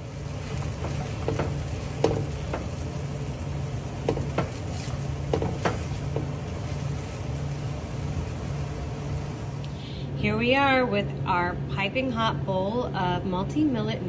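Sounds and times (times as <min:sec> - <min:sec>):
spatula stirring noodles in pan: 0:00.0 - 0:09.6
faint sizzling: 0:00.0 - 0:10.9
low steady hum: 0:00.0 - 0:14.0
spatula knocking against pan: 0:00.7 - 0:02.8, 0:04.0 - 0:06.4.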